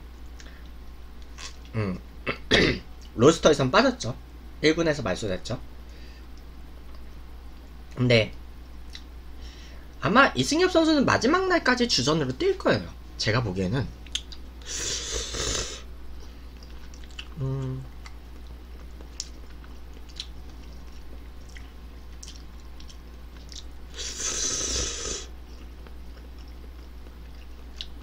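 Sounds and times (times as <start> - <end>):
quiet chewing: 5.9 - 8.0, 8.8 - 9.1, 16.2 - 24.2, 25.3 - 28.0
person slurping noodles: 14.7 - 15.8, 23.9 - 25.3
person humming: 17.4 - 17.9.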